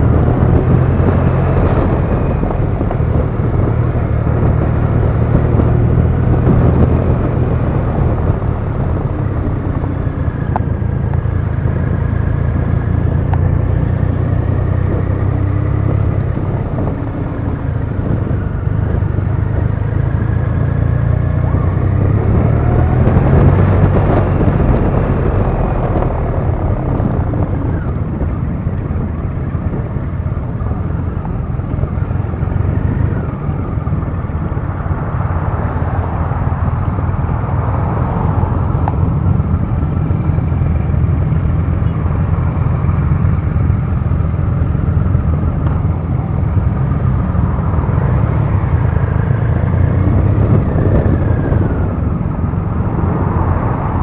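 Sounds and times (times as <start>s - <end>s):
motorcycle engine running: 0.0s - 35.0s
road and wind noise: 0.0s - 54.0s.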